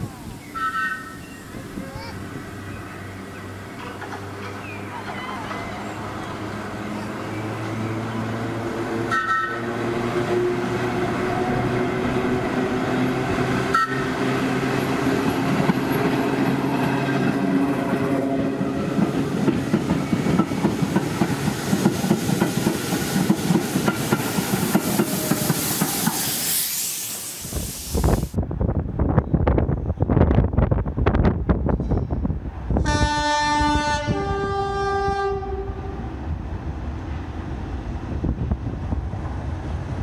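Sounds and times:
train low hum: 0:00.0 - 0:40.0
wheels clicking over rail joints: 0:03.3 - 0:07.8.

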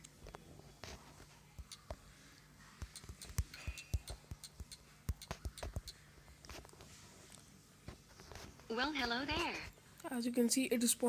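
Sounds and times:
fingertips tapping touchscreen: 0:00.0 - 0:02.1, 0:02.7 - 0:07.4
faint steady hum: 0:00.0 - 0:11.0.

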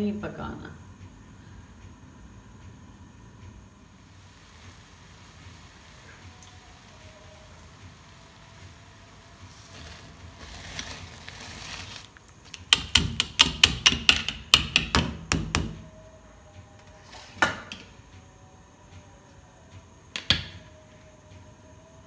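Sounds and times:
water boiling and hissing: 0:00.4 - 0:14.9, 0:16.8 - 0:19.2.

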